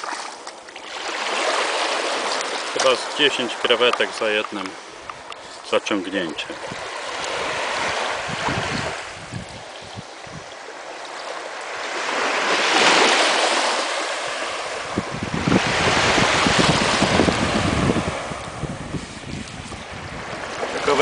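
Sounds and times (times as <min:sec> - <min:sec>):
small waves washing: 0:00.0 - 0:21.0
wind buffeting microphone: 0:06.2 - 0:10.7, 0:14.2 - 0:21.0.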